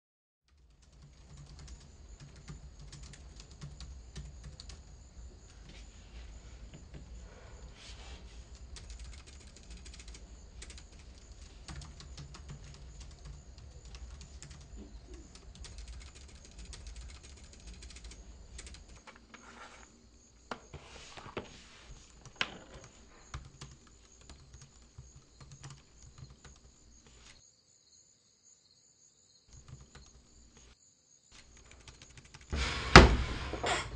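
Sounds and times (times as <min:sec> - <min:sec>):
laptop keyboard typing: 0:00.5 - 0:05.8, 0:08.2 - 0:19.3, 0:22.0 - 0:27.4, 0:29.5 - 0:30.7, 0:31.4 - 0:32.5.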